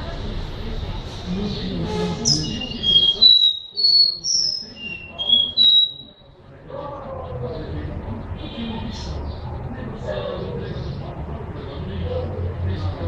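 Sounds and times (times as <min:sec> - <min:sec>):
bird whistling song: 0:02.2 - 0:06.2.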